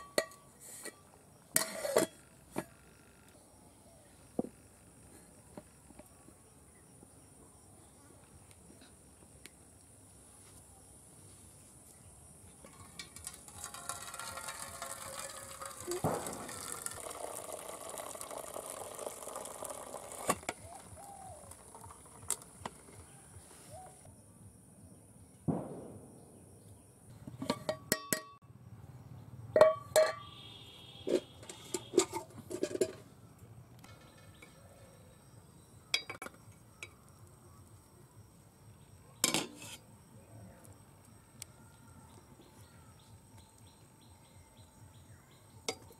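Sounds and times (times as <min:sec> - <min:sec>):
metal pot and lid clinking: 0:00.0 - 0:01.0, 0:01.6 - 0:02.2, 0:12.6 - 0:20.6, 0:27.4 - 0:28.4, 0:29.6 - 0:30.3, 0:31.1 - 0:33.1, 0:35.9 - 0:36.4, 0:39.2 - 0:39.8.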